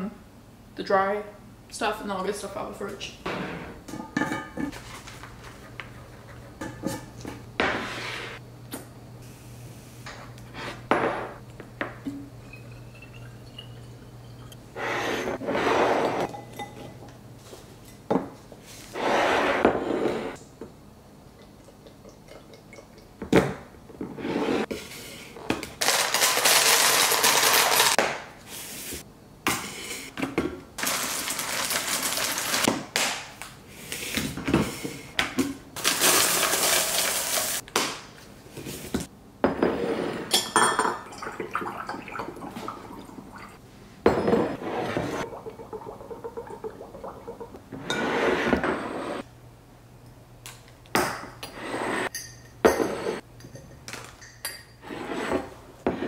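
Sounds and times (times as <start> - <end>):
glass jars clinking: 12.1 - 15.4, 16.0 - 17.1, 40.3 - 43.5, 52.0 - 54.8
dry food pouring into containers: 30.8 - 32.6.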